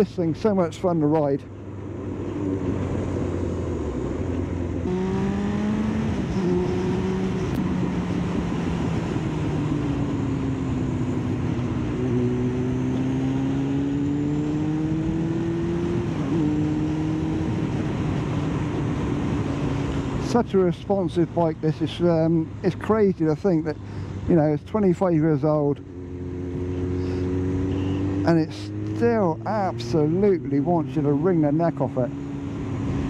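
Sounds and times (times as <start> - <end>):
motorcycle engine running: 4.0 - 20.2.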